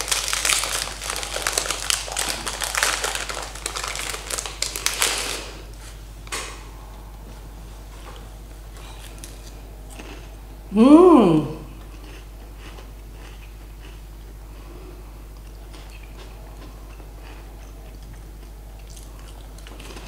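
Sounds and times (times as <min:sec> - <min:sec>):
plastic wrapper crinkling and tearing: 0:00.0 - 0:05.6.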